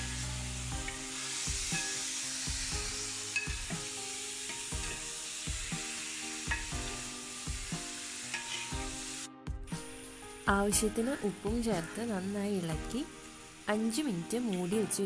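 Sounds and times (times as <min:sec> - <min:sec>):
chicken sizzling in hot oil: 0:00.0 - 0:15.0
metal spatula scraping pan: 0:08.3 - 0:08.8.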